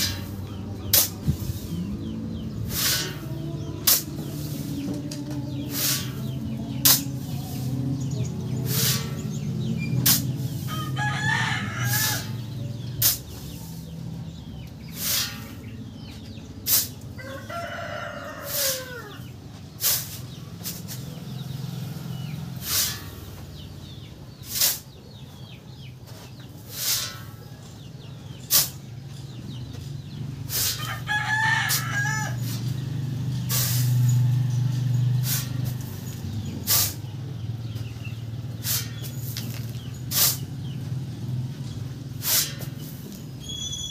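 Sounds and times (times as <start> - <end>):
shovel scraping into sand: 0.0 - 1.8, 2.6 - 4.8, 5.7 - 7.8, 8.6 - 9.2, 10.0 - 12.4, 13.0 - 13.9, 14.9 - 15.7, 16.6 - 17.0, 18.4 - 18.9, 19.8 - 21.1, 22.6 - 23.2, 24.4 - 25.0, 26.2 - 27.4, 28.5 - 28.8, 30.5 - 30.9, 33.5 - 34.2, 35.2 - 35.8, 36.6 - 37.0, 38.6 - 40.5, 42.2 - 43.9
rooster crowing: 10.7 - 12.4, 17.2 - 19.2, 30.8 - 32.5.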